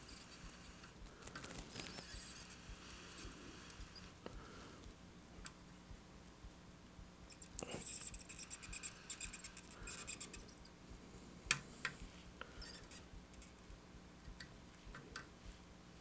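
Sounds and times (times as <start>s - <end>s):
soldering iron scratching crackle: 0.0s - 4.2s, 7.3s - 10.6s, 12.6s - 13.7s.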